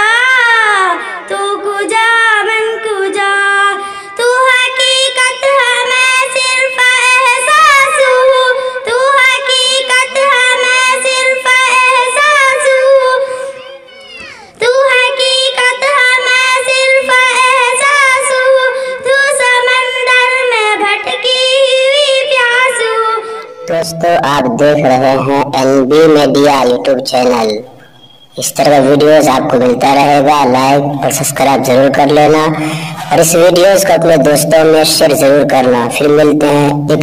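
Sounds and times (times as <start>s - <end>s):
girl singing into a microphone: 0.0s - 25.8s.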